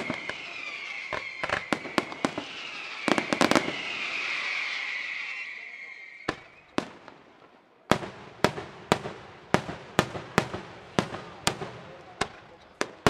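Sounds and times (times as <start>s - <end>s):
firework whistle: 0.0s - 7.0s
firework bangs echoing: 0.0s - 13.0s.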